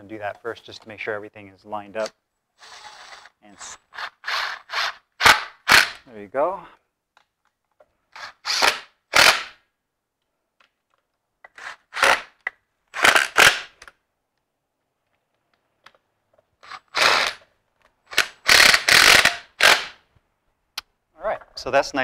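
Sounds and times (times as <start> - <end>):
cordless drill driving screws: 2.6 - 6.0, 8.1 - 9.6, 11.5 - 12.4, 13.0 - 13.7, 16.6 - 17.5, 18.1 - 20.0.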